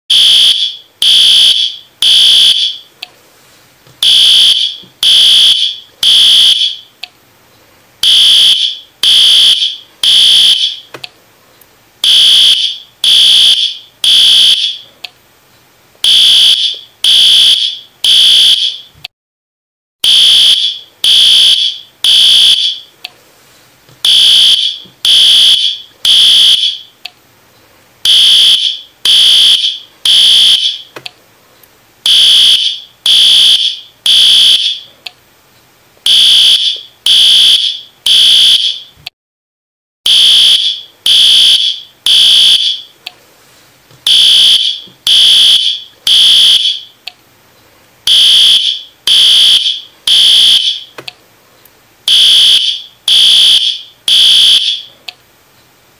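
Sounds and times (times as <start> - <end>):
fire alarm beeping: 0.1 - 2.9, 4.0 - 6.9, 8.0 - 10.9, 12.0 - 14.9, 16.0 - 18.9, 20.0 - 22.9, 24.0 - 26.9, 28.1 - 30.9, 32.1 - 34.9, 36.1 - 39.0, 40.1 - 43.0, 44.1 - 47.0, 48.1 - 51.0, 52.1 - 54.9.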